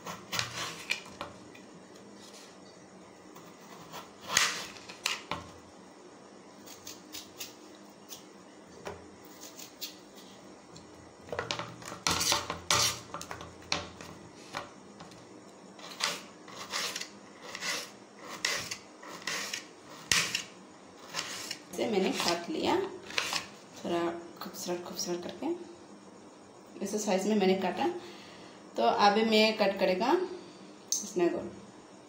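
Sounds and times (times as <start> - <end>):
knife slicing potato on plate: 0.0 - 1.2, 3.4 - 5.4, 6.6 - 8.3, 9.3 - 10.1, 11.8 - 14.1, 15.8 - 22.4.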